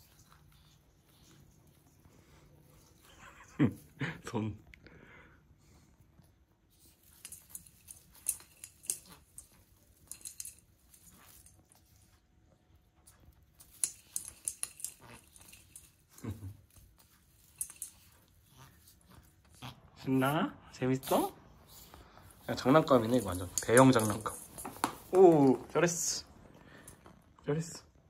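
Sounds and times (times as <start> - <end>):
plastic tree needles rustling: 6.7 - 12.2, 13.0 - 27.1.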